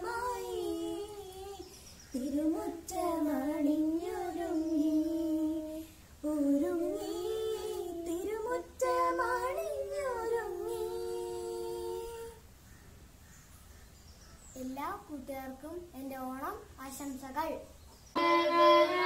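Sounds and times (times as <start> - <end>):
child singing: 0.0 - 12.4, 18.2 - 19.0.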